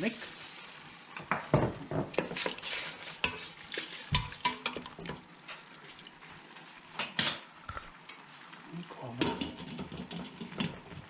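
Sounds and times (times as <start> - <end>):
wooden spoon scraping a pot: 2.1 - 5.9.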